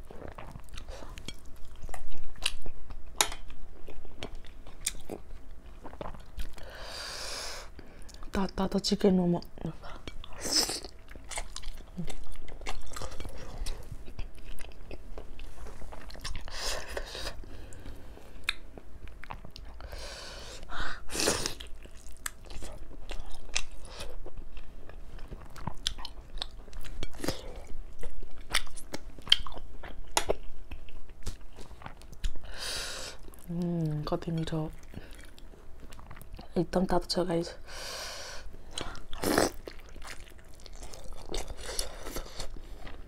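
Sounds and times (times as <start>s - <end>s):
chewing and biting food: 10.2s - 17.1s, 21.5s - 32.4s, 38.7s - 43.0s.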